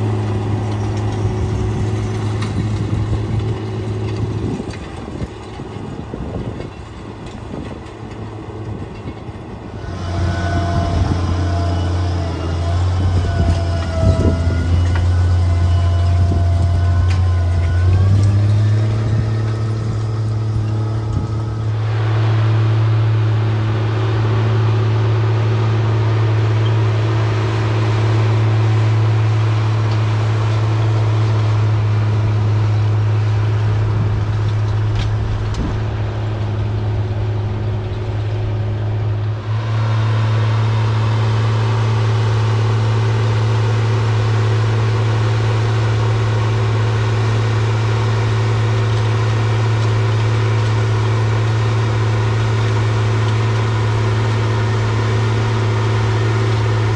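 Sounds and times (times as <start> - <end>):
tractor diesel engine droning: 0.0 - 56.9.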